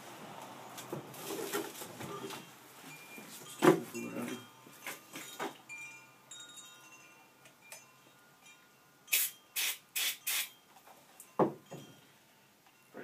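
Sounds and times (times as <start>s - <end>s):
aerosol spray can hissing: 9.1s - 10.5s.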